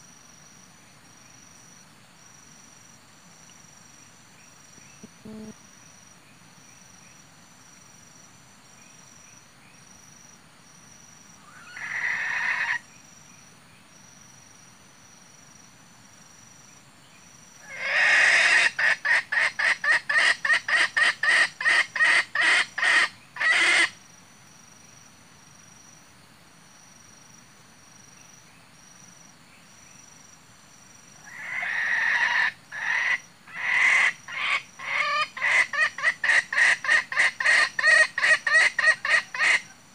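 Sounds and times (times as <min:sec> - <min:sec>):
faint high insect chirp: 0:00.0 - 0:39.9
junglefowl clucking: 0:17.7 - 0:24.0, 0:31.2 - 0:39.7.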